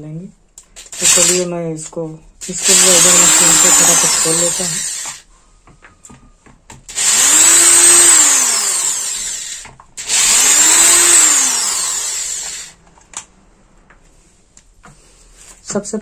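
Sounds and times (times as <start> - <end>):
electric drill-driver spinning: 0.8 - 1.5, 2.4 - 5.3, 6.9 - 12.8.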